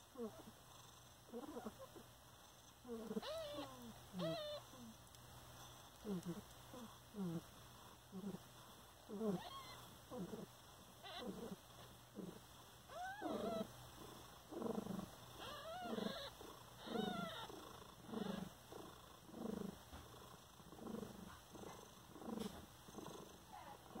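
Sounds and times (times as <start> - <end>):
cat purring: 0.1 - 24.0
kittens mewing: 3.0 - 4.9, 12.2 - 13.7, 15.0 - 18.6.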